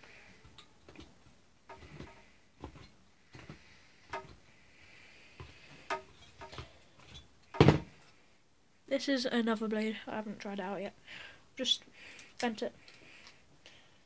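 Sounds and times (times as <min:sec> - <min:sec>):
loud knock: 0:07.6 - 0:07.9.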